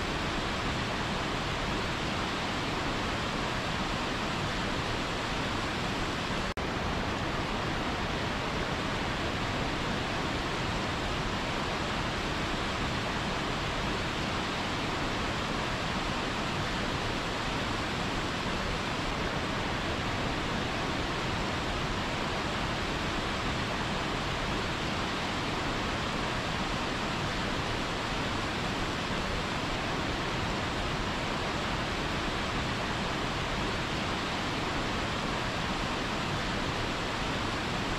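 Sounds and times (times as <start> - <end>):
waterfall rushing: 0.0 - 37.9.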